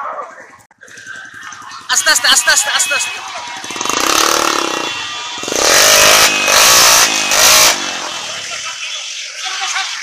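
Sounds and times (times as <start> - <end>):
motorcycle engines revving: 0.7 - 10.0
loud throttle bursts: 2.3 - 8.5.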